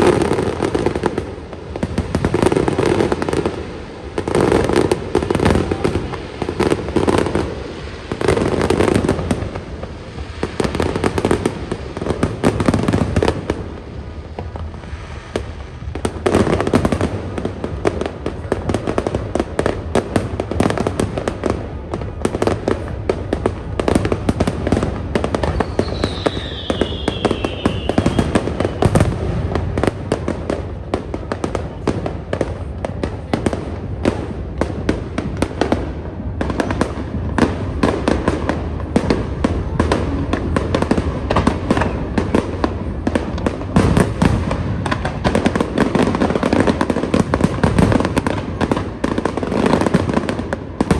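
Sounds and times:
fireworks crackling and banging: 0:00.0 - 0:50.9
firework falling whistle: 0:25.3 - 0:29.2.

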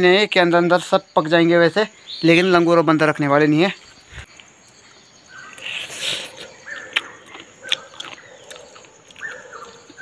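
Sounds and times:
wet biting and sucking: 0:05.6 - 0:10.0.

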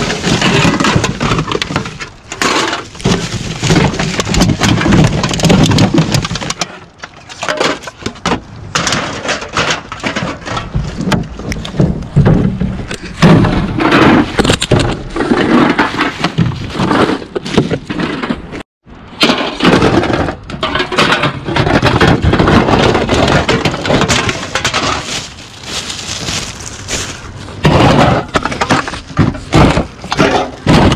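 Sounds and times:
plastic bags crinkling: 0:23.3 - 0:27.6
aluminium cans clattering: 0:27.6 - 0:30.9.

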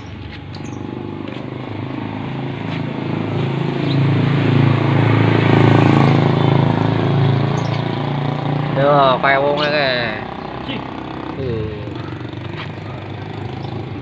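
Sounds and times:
small motorcycle engine running: 0:00.0 - 0:14.0.

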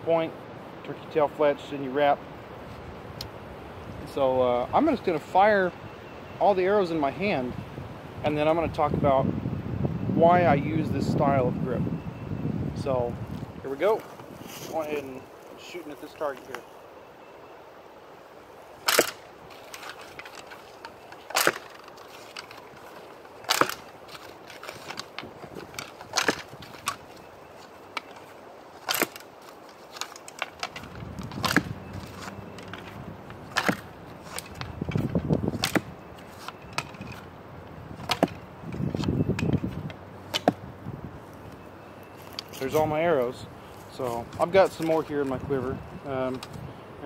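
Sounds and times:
low rustling noise: 0:00.0 - 0:47.0
bowstring snapping: 0:18.8 - 0:27.2, 0:27.9 - 0:37.3.

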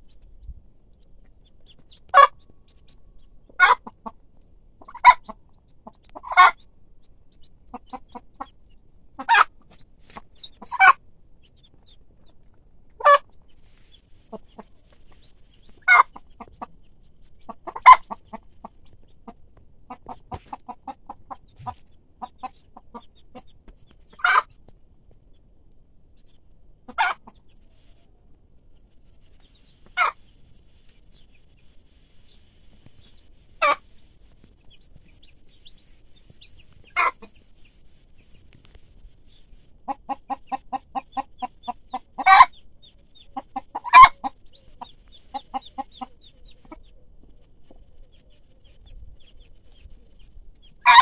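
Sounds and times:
hen clucking: 0:01.0 - 0:13.6, 0:14.2 - 0:24.6, 0:26.2 - 0:28.3, 0:29.4 - 0:30.3, 0:32.8 - 0:51.0
faint quick chick sounds: 0:20.0 - 0:22.6.

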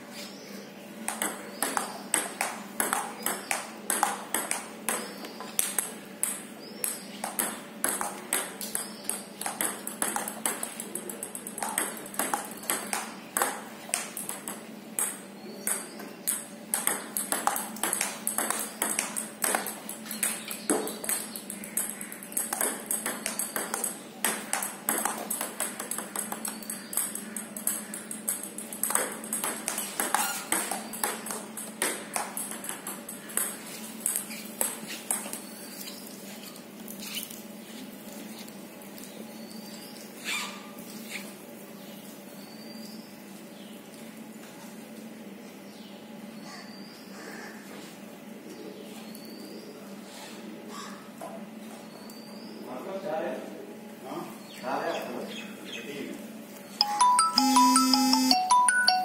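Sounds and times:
table tennis ball clicking: 0:01.1 - 0:35.4.

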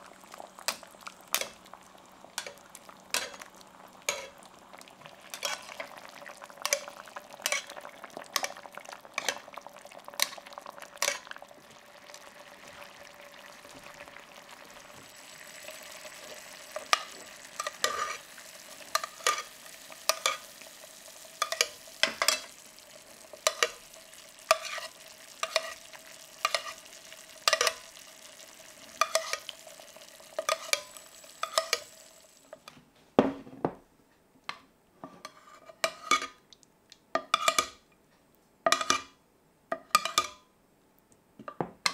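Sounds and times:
sauce sizzling: 0:00.0 - 0:32.8
metal spoon scraping pan: 0:04.1 - 0:04.4, 0:05.3 - 0:05.8, 0:06.6 - 0:07.8, 0:16.8 - 0:18.3, 0:18.9 - 0:20.5, 0:21.4 - 0:22.6, 0:23.4 - 0:23.8, 0:24.5 - 0:26.9, 0:29.0 - 0:29.5, 0:30.4 - 0:31.9, 0:35.0 - 0:36.4, 0:37.2 - 0:37.8, 0:38.7 - 0:39.1, 0:39.8 - 0:40.4.

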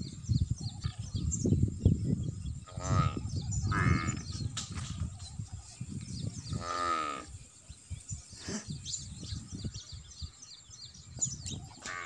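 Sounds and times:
bird chirps: 0:00.0 - 0:12.0
wavering bleat: 0:02.7 - 0:04.1.

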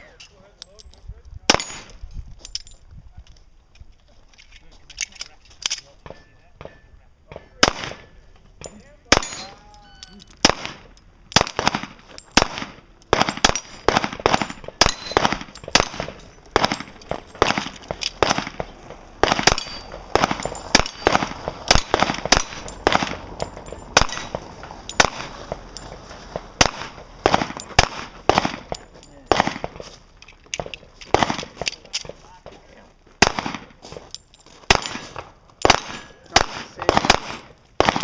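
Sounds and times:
handgun shots: 0:09.1 - 0:09.6, 0:10.4 - 0:23.2, 0:24.0 - 0:25.4, 0:26.6 - 0:29.8, 0:30.6 - 0:32.2, 0:33.2 - 0:33.7, 0:34.7 - 0:38.0.

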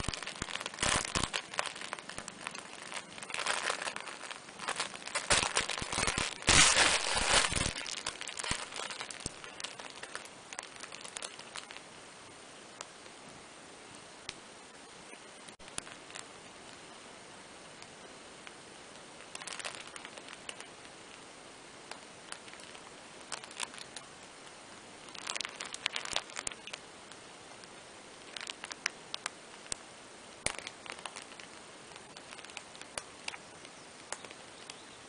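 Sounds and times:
cats grooming on fabric mat: 0:17.8 - 0:34.8.

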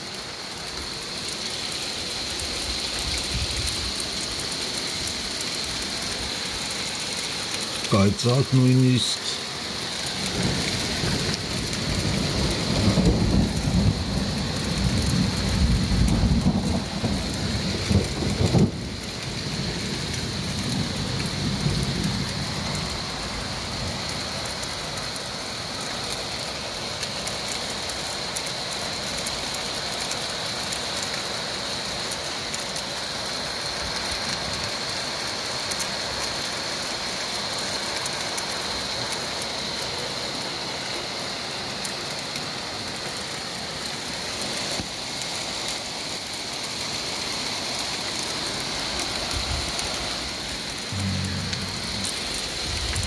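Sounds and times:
heavy rain and hail pelting: 0:00.0 - 0:53.0
low rumble: 0:50.9 - 0:53.0.

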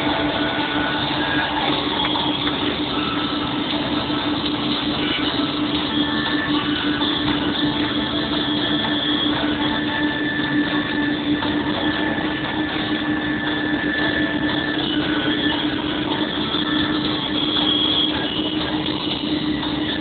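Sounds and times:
snow groomer engine hum: 0:00.0 - 0:20.0.

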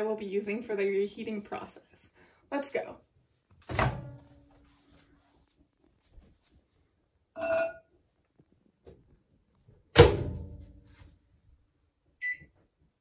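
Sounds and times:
short keypad beep: 0:07.4 - 0:07.8
microwave door banging shut: 0:10.0 - 0:10.5.

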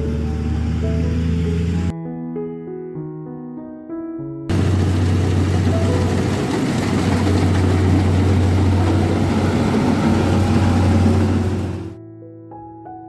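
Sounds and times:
combine harvester running: 0:00.0 - 0:01.9, 0:04.5 - 0:12.0.

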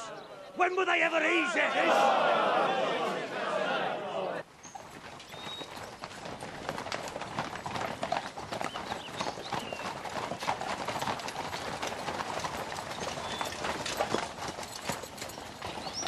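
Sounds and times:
horses clip-clopping on dirt: 0:04.4 - 0:16.0.

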